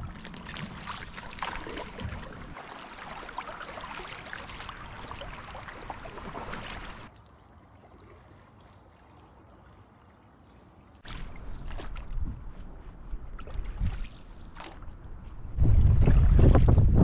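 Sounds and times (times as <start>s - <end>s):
canoe paddles splashing: 0.0s - 7.1s
water lapping at hull: 0.0s - 17.0s
wind buffeting microphone: 15.0s - 17.0s.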